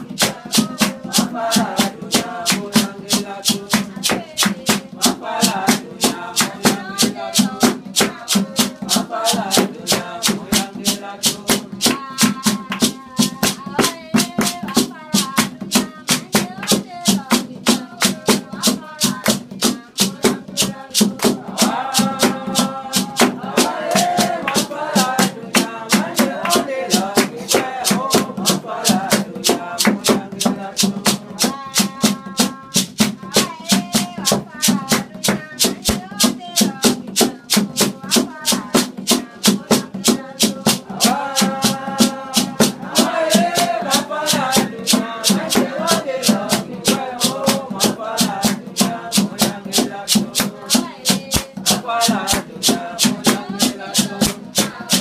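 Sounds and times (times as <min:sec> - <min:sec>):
congregation singing: 0:00.0 - 0:14.2, 0:19.6 - 0:32.5, 0:38.9 - 0:55.0
hand drum beating: 0:00.0 - 0:55.0.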